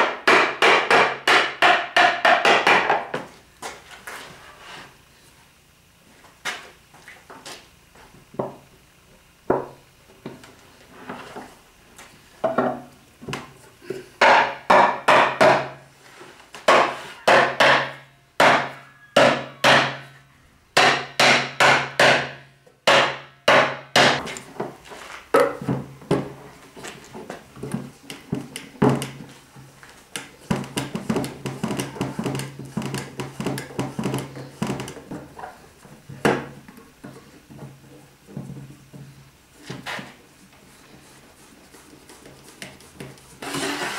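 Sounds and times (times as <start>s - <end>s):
mallet knocking wooden boards: 0.0s - 3.2s, 14.2s - 15.8s, 16.7s - 20.0s, 20.8s - 24.2s.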